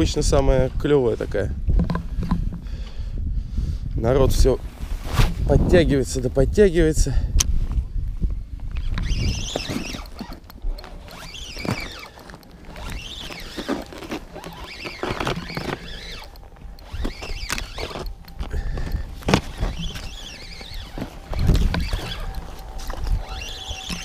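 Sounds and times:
spinning reel whirring squeak: 8.8 - 24.0.

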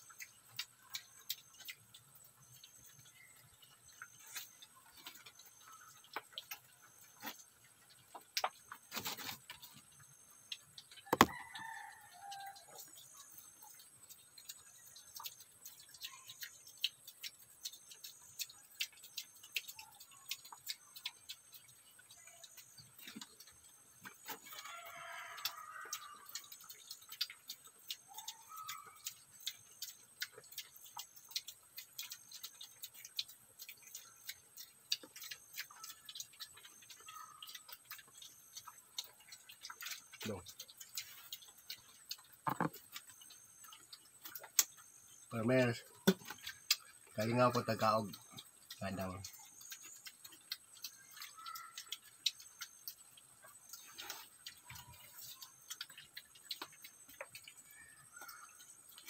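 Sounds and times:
piglets crunching dry feed: 0.0 - 59.0
chicken calls: 24.2 - 26.8, 27.8 - 29.5, 50.8 - 52.3, 53.7 - 59.0.

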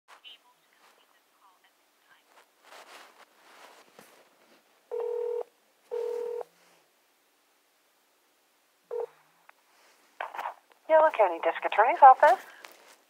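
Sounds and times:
telephone line beeps: 4.9 - 6.5, 8.9 - 9.1.

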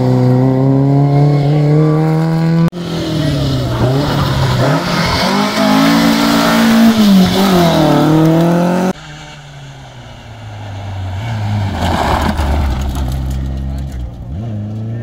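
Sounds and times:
rally car accelerating: 0.0 - 15.0
rally car approaching: 0.0 - 15.0.

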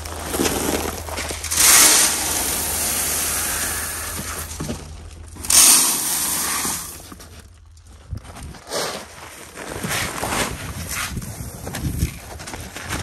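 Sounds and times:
seed pouring into metal hopper: 0.0 - 7.2.

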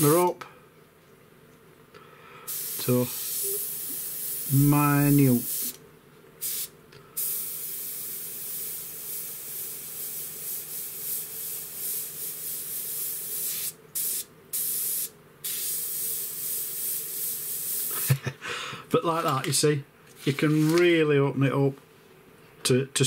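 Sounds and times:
faint steady hum: 0.0 - 23.0
airbrush hissing: 2.5 - 5.8, 6.4 - 18.1.

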